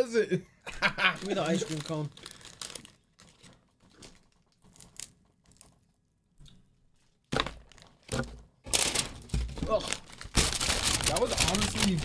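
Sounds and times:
plastic wrapper crinkling: 0:01.2 - 0:06.0, 0:07.4 - 0:12.0.

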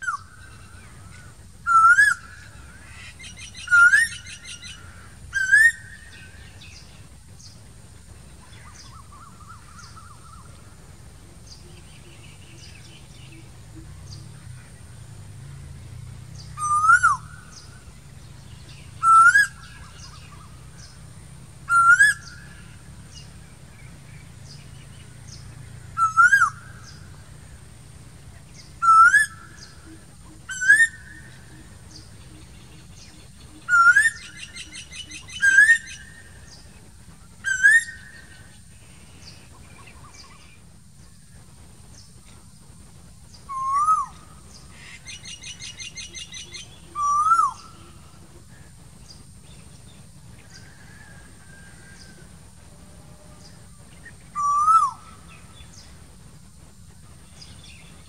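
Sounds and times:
bird rising whistled calls: 0:00.0 - 0:06.9, 0:16.4 - 0:17.9, 0:18.6 - 0:21.0, 0:21.7 - 0:23.3, 0:25.9 - 0:27.1, 0:28.6 - 0:36.7, 0:37.4 - 0:38.6, 0:43.4 - 0:48.7, 0:50.4 - 0:52.2, 0:53.4 - 0:55.9.

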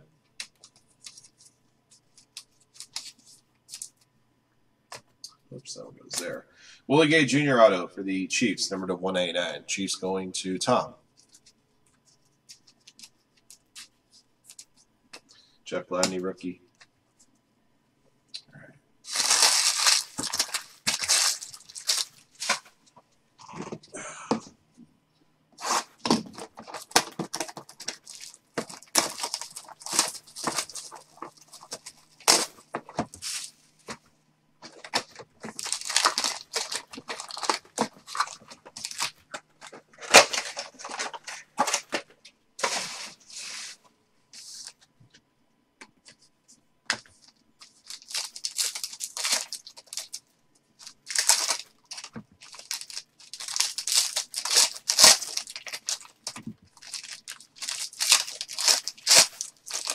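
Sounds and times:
packaging tearing and crinkling: 0:19.1 - 0:22.7, 0:25.6 - 0:33.6, 0:34.6 - 0:42.0, 0:47.6 - 0:50.2, 0:50.8 - 0:59.9.

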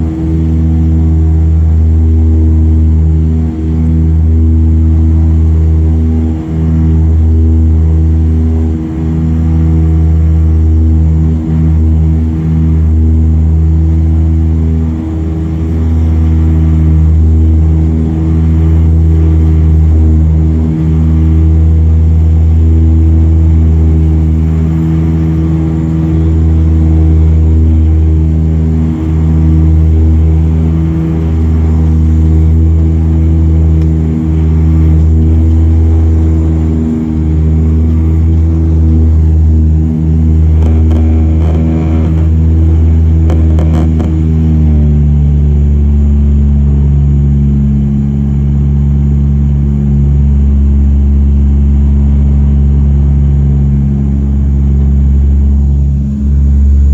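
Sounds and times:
turboprop engine drone: 0:00.0 - 0:56.9.

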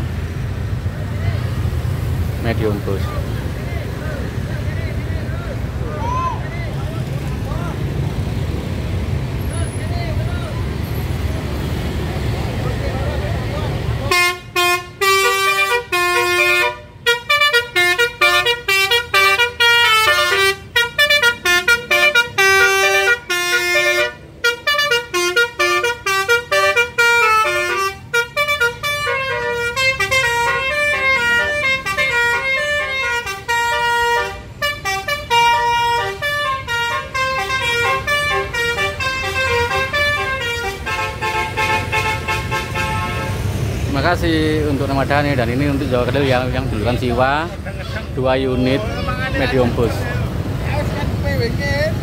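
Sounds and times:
bus engine and road rumble: 0:00.0 - 0:52.0
musical bus horns: 0:14.0 - 0:43.9, 0:45.4 - 0:50.2.

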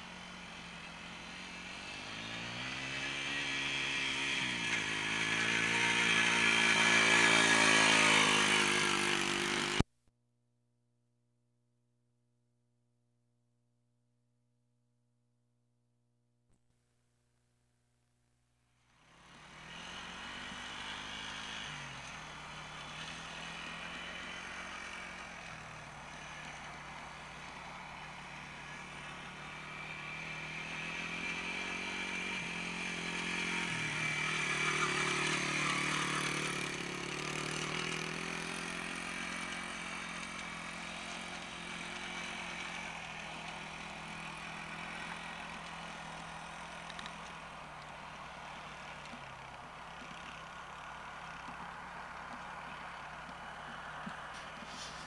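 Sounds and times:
dirt bike engine revving: 0:00.0 - 0:09.8, 0:19.0 - 0:55.0.

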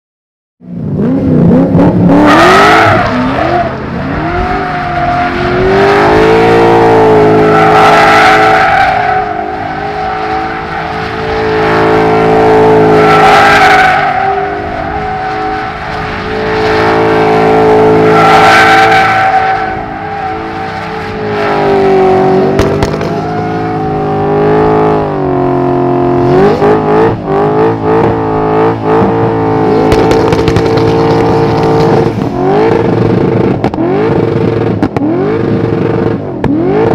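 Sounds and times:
car engine revving high: 0:00.9 - 0:36.9
tyres screeching: 0:02.4 - 0:25.0.

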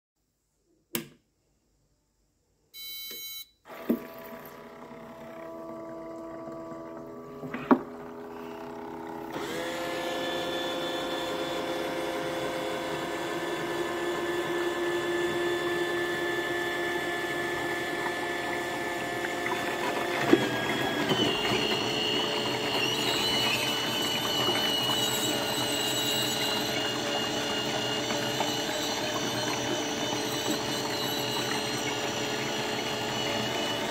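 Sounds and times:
short electronic beep: 0:02.8 - 0:03.6
record cleaner motor hum and whine: 0:03.7 - 0:33.9.

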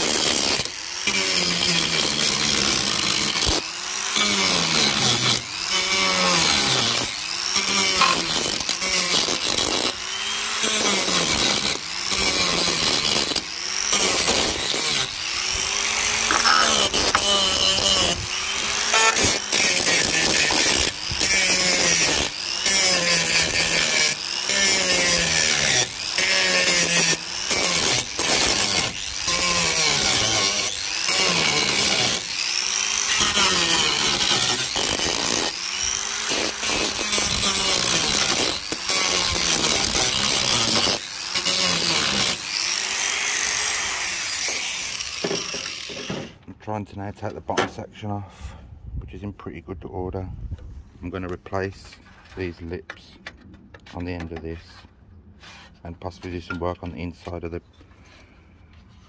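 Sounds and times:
angle grinder cutting sheet steel: 0:00.0 - 0:46.4.

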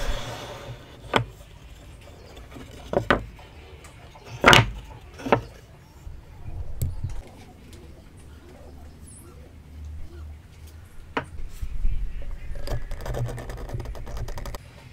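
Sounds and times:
wooden blocks knocking: 0:02.5 - 0:03.3, 0:04.3 - 0:05.6.

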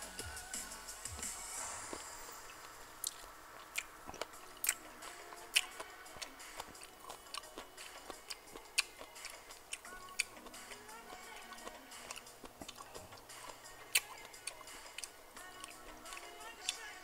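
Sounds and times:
person chewing: 0:01.8 - 0:17.0
mouth clicks and smacks: 0:02.4 - 0:10.9, 0:11.6 - 0:16.8.

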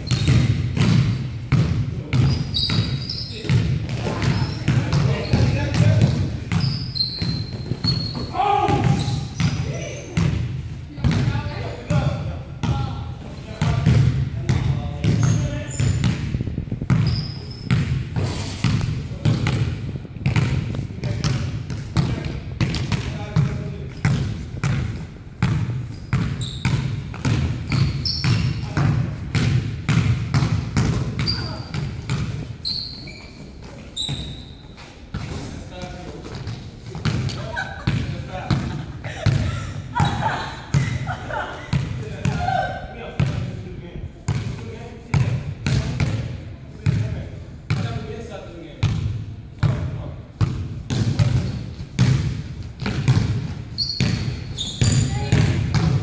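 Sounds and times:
sneaker squeaks: 0:00.0 - 0:00.9, 0:02.1 - 0:10.4, 0:15.0 - 0:16.3, 0:16.9 - 0:18.8, 0:25.4 - 0:28.8, 0:30.8 - 0:41.1, 0:50.9 - 0:52.1, 0:52.8 - 0:56.0
basketball bouncing on hardwood: 0:00.1 - 0:09.6, 0:18.6 - 0:32.5, 0:50.4 - 0:56.0.

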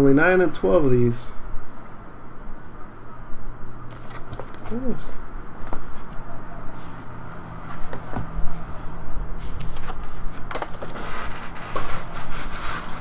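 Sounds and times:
card packaging rustling: 0:03.9 - 0:04.9, 0:09.4 - 0:13.0.

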